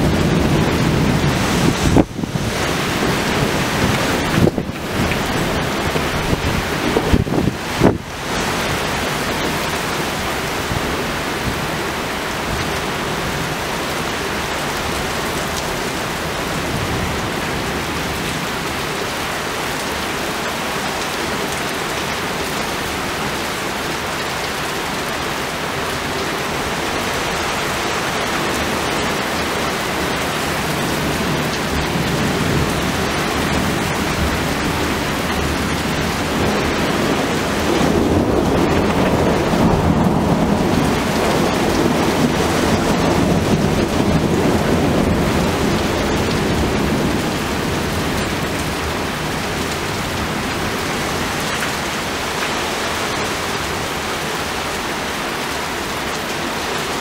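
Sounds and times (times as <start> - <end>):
low rumble of thunder: 0.0 - 8.1, 30.6 - 51.4
heavy rain pouring: 0.0 - 57.0.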